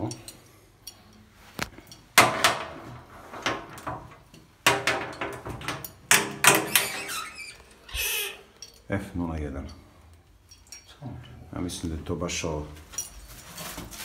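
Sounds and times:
metal door clanking: 0:02.2 - 0:08.4.

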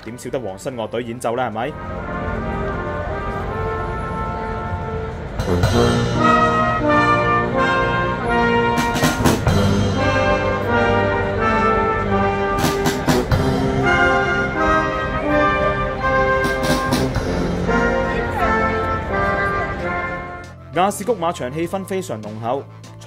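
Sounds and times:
military brass band playing: 0:01.7 - 0:20.8
loud percussion crashes: 0:05.4 - 0:06.7, 0:08.7 - 0:10.5, 0:12.5 - 0:14.3.

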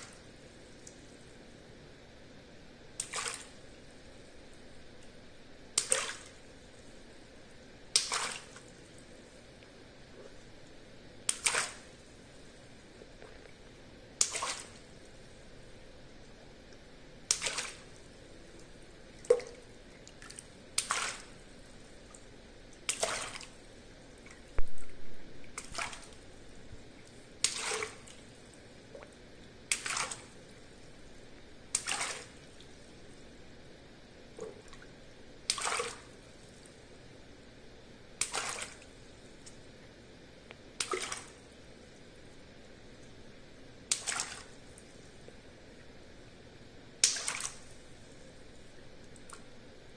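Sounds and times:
water splashing: 0:03.0 - 0:03.6, 0:05.8 - 0:06.4, 0:07.9 - 0:08.8, 0:11.3 - 0:12.0, 0:14.2 - 0:14.9, 0:17.3 - 0:21.4, 0:22.7 - 0:23.7, 0:24.3 - 0:26.4, 0:27.0 - 0:28.3, 0:28.9 - 0:30.6, 0:31.7 - 0:32.8, 0:35.5 - 0:36.2, 0:38.2 - 0:38.9, 0:40.8 - 0:41.5, 0:43.9 - 0:44.6, 0:47.0 - 0:47.8.

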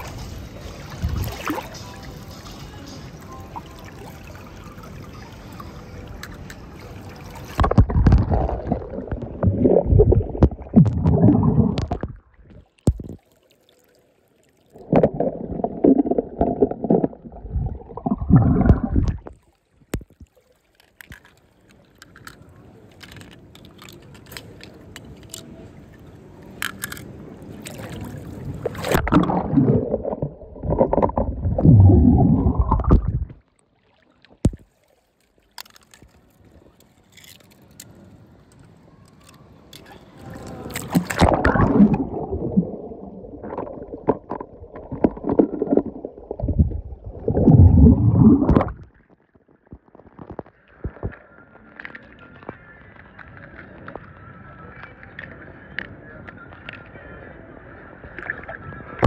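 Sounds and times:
water sloshing and splashing: 0:00.0 - 0:02.7, 0:03.5 - 0:54.0
water lapping: 0:03.6 - 0:49.1.

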